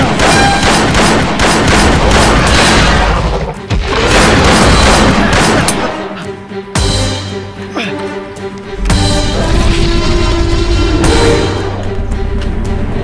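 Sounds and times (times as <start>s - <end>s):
rapid automatic gunfire: 0.0s - 2.9s, 4.1s - 5.7s.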